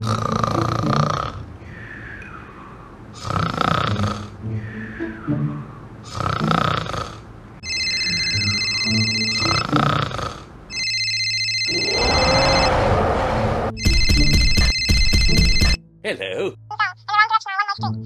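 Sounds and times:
cartoon snoring: 0.0 - 1.5, 2.1 - 7.3, 9.4 - 10.6, 11.7 - 13.8
drawn-out voice rising and falling: 4.4 - 6.0, 11.7 - 13.8
high electronic ringing tone: 7.6 - 9.8, 10.7 - 12.9, 13.7 - 15.8
rapid alarm-like ringing: 7.6 - 9.8, 10.7 - 15.8.

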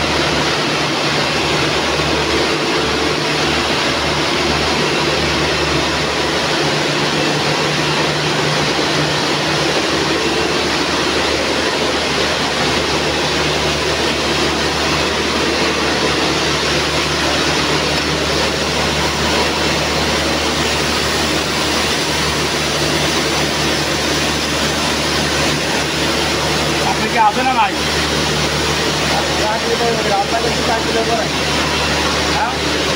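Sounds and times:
low motor hum: 0.0 - 32.9
sewing machinery running: 0.0 - 32.9.

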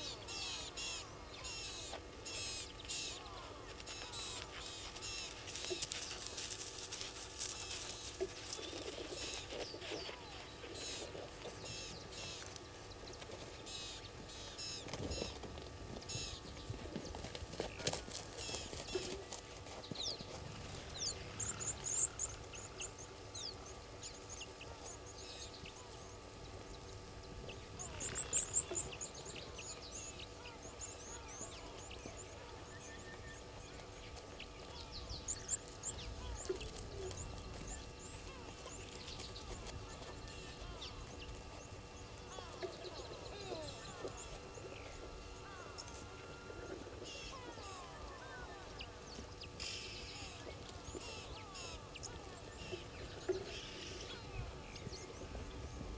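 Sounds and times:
birds chirping: 0.0 - 55.9
birds twittering: 0.0 - 55.9.

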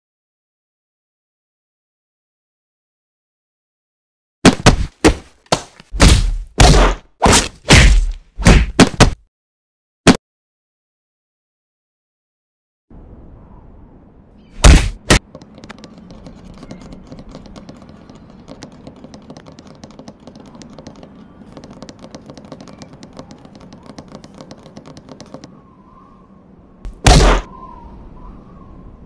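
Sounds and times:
cartoon punch hits: 4.4 - 5.3, 6.0 - 9.2, 14.6 - 15.3, 26.9 - 27.5.

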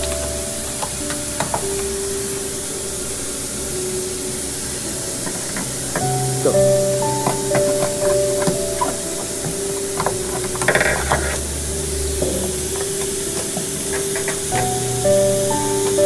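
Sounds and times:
pneumatic drill drilling metal: 12.2 - 14.9.

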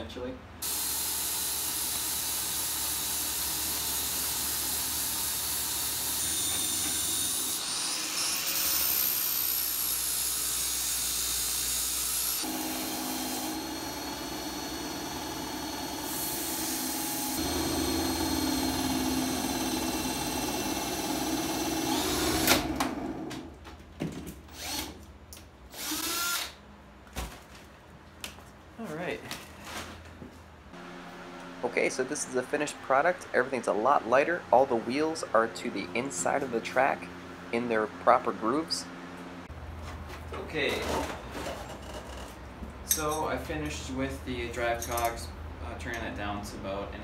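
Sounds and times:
cordless drill spinning shaft: 0.6 - 7.6, 8.4 - 23.0, 24.5 - 24.9, 25.7 - 26.5
grinder grinding metal: 1.8 - 22.6
spinning winding down whine: 12.4 - 23.1.

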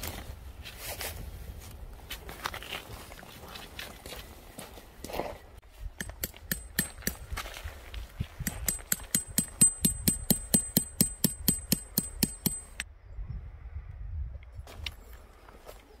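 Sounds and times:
hammer striking metal tent peg: 6.0 - 7.2, 8.4 - 12.8.

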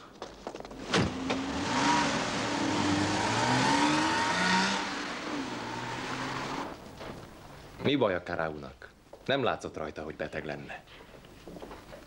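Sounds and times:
car engine revving: 0.8 - 6.9.

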